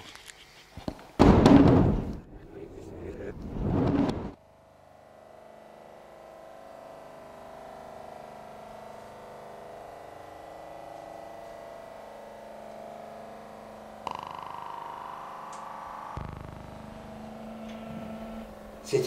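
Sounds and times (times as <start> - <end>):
droning soundtrack tones: 4.3 - 19.0
deep low tone: 12.3 - 19.0.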